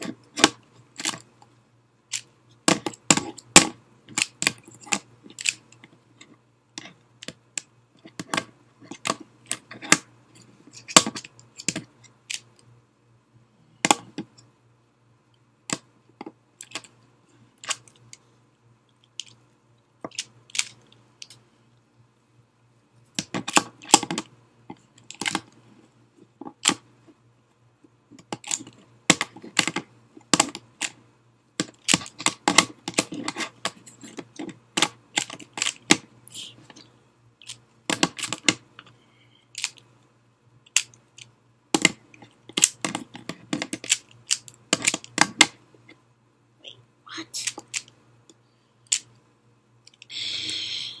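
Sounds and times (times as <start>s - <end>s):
puzzle cube clicking turns: 2.1s - 5.9s, 10.7s - 12.7s, 16.6s - 17.0s, 17.6s - 18.0s, 20.1s - 21.4s, 26.4s - 26.8s, 28.2s - 31.0s, 31.6s - 38.6s, 39.5s - 39.8s, 40.7s - 45.6s, 47.4s - 48.0s.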